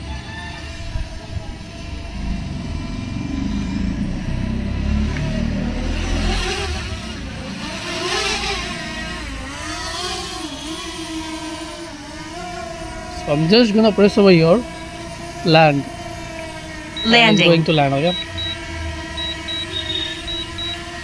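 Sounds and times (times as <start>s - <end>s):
drone propellers whining: 0.0s - 21.0s.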